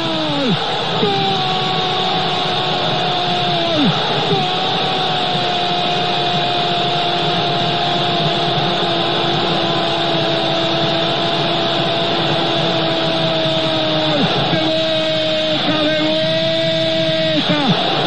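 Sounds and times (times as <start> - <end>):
commentator shouting: 0.0 - 8.6, 12.4 - 18.0
stadium crowd roaring: 0.0 - 18.0.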